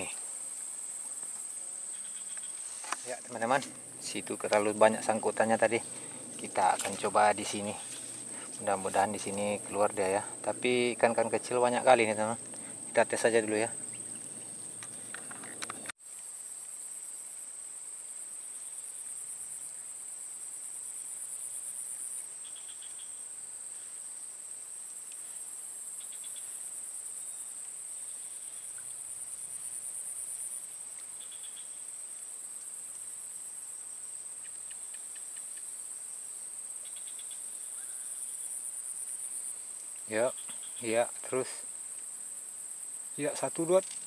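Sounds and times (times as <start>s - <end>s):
insects trilling: 0.0s - 44.0s.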